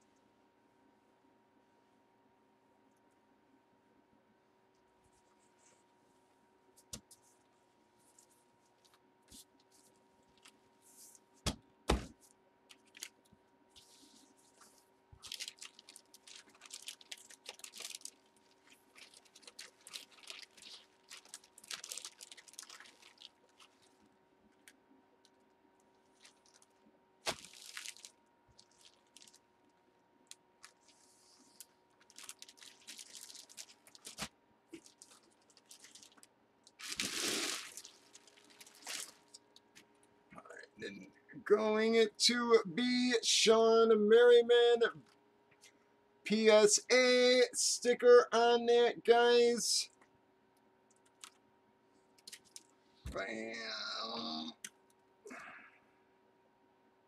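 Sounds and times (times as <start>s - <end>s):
plastic bag crinkling: 9.6s - 10.7s, 12.7s - 25.4s, 26.0s - 40.0s, 52.2s - 52.8s.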